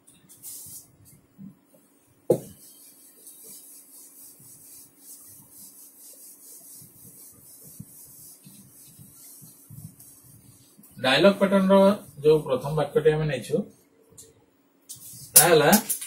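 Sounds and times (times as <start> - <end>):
duster wiping whiteboard: 0.3 - 1.2, 2.3 - 13.1.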